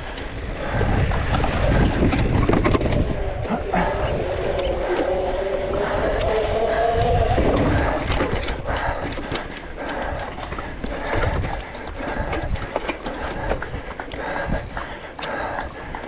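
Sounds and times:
mountain bike rattling over rough ground: 0:00.0 - 0:14.8
wind rumble on microphone: 0:00.0 - 0:16.0.

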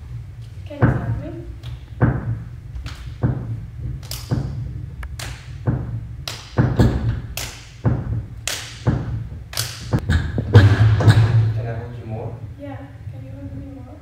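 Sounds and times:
low steady hum: 0:00.0 - 0:14.0
hands slapping skin: 0:06.2 - 0:06.6, 0:08.4 - 0:08.9, 0:09.5 - 0:10.0.

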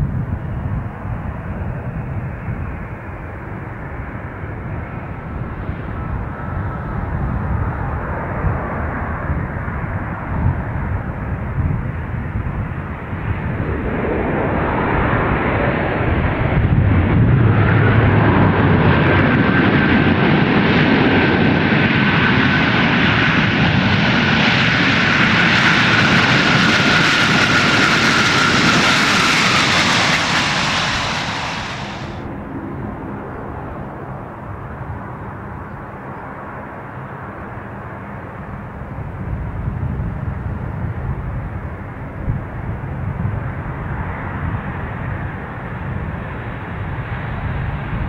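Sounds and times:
jet engines roaring: 0:01.8 - 0:38.1
jet engine whine falling in pitch: 0:11.9 - 0:36.0.

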